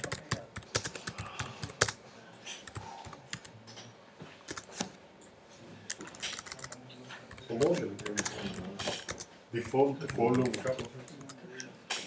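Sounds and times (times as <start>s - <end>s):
typing on keyboard: 0.0s - 2.0s, 2.6s - 3.6s, 4.5s - 4.9s, 5.9s - 11.4s.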